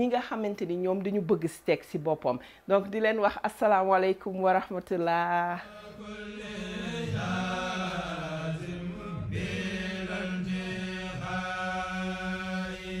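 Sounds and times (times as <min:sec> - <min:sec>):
chanted vocal line: 0:05.6 - 0:13.0.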